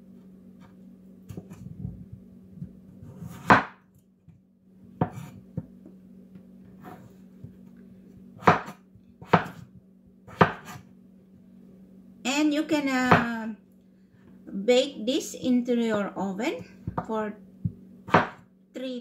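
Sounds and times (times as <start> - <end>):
cleaver chopping on wooden board: 3.4 - 3.8, 8.4 - 9.6, 10.3 - 10.8, 18.1 - 18.4.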